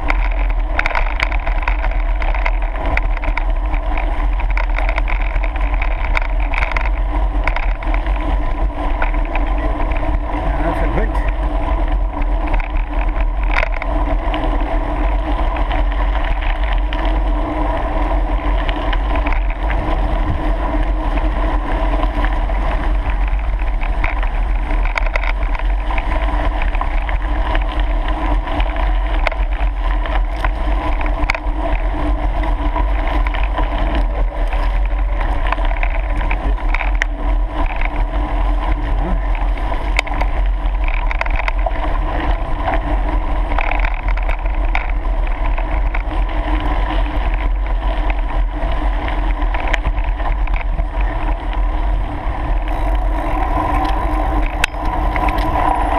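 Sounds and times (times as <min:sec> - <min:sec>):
tyres rolling on gravel: 0:00.0 - 0:55.9
wind buffeting microphone: 0:00.0 - 0:55.9.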